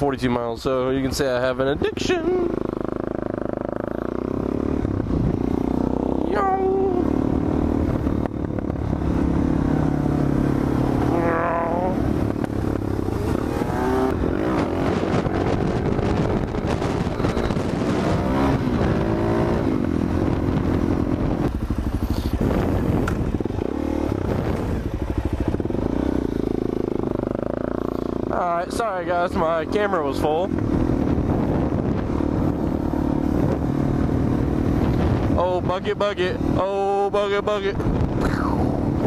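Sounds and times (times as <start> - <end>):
motorcycle engine revving: 1.4 - 39.0
wind rush on microphone: 1.8 - 39.0.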